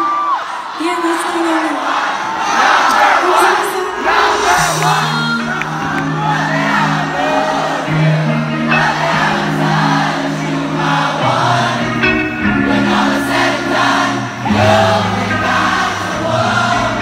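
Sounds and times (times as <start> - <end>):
woman singing: 3.2 - 6.0
keyboard chords: 3.2 - 17.0.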